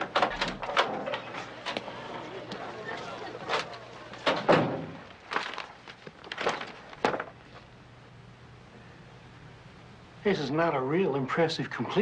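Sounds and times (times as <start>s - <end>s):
paper rustling: 5.1s - 7.7s.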